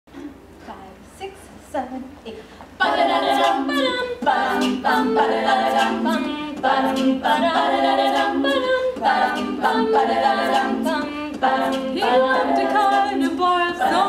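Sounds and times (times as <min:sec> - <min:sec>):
women singing a cappella harmony: 0:02.8 - 0:14.0.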